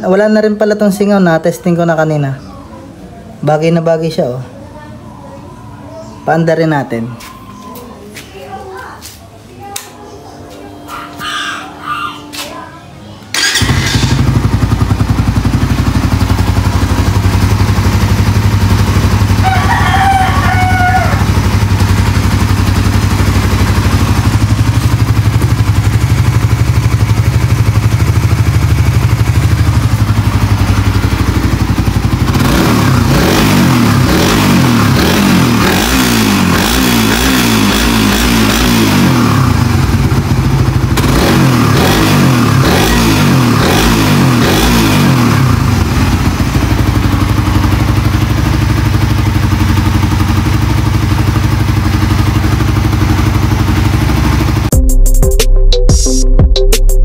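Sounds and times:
motorcycle engine idling and revving: 0.0 - 9.7, 13.3 - 55.7
rooster crowing: 19.3 - 21.5.

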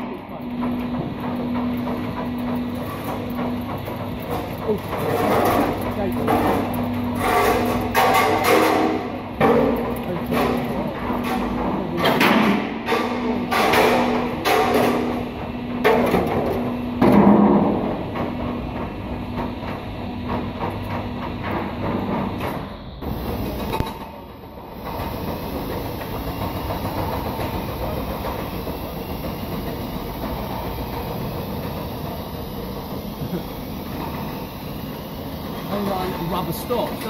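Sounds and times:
hum: 12.8 - 36.2.

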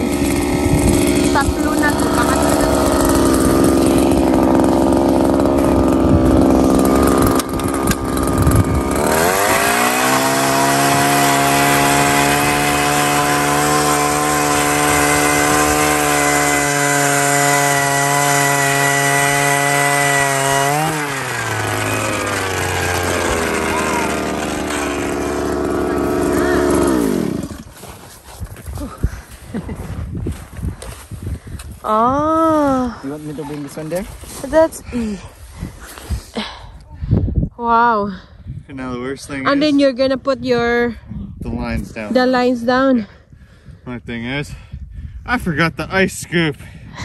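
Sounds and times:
ice auger engine revving: 0.0 - 27.9.

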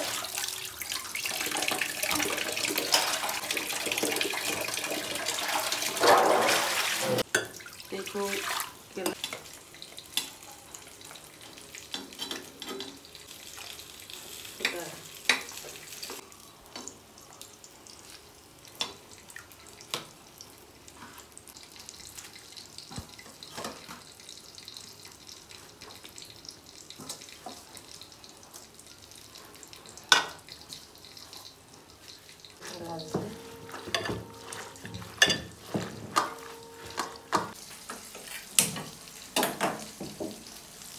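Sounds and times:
spoon clinking on pots: 11.9 - 13.0, 33.0 - 37.6.

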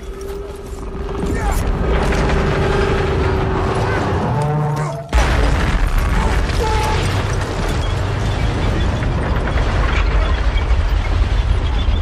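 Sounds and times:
low rumble of battle noise: 0.0 - 12.0
loud explosion: 5.1 - 12.0.

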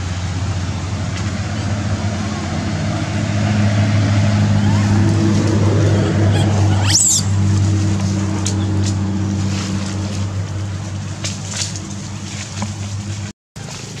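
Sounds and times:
motor humming: 4.0 - 8.4
short high squeak: 4.5 - 5.2, 5.8 - 7.3.

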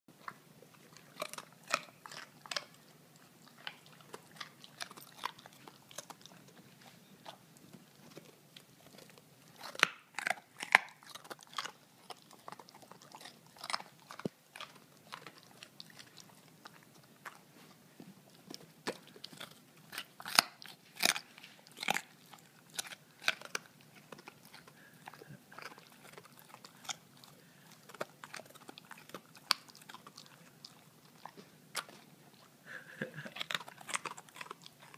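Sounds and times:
dog crunching carrot: 0.2 - 34.9.

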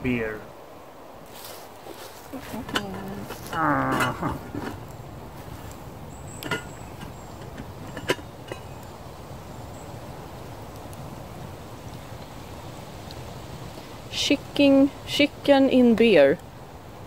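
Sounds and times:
campfire burning with hiss: 0.0 - 17.0
sharp clicks of fire: 10.7 - 11.2.

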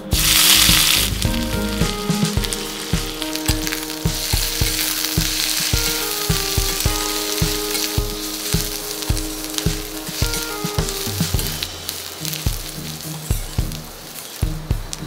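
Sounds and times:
background music with steady beat: 0.0 - 15.0
onions sizzling in hot oil: 0.1 - 15.0
spatula stirring in a pan: 2.4 - 13.4.

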